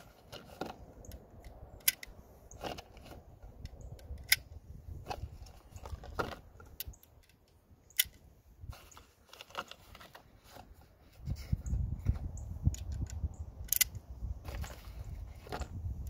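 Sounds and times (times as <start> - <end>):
cartridges clicking into magazine: 1.0 - 2.2, 3.6 - 4.5, 6.7 - 8.2, 12.8 - 14.0.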